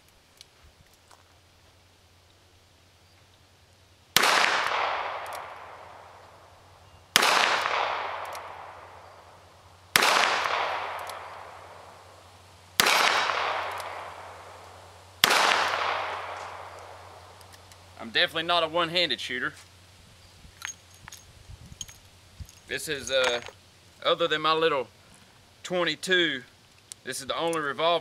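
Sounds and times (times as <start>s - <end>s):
revolver shots with echo: 4.2s - 6.2s, 7.2s - 9.2s, 9.9s - 11.9s, 12.8s - 17.2s.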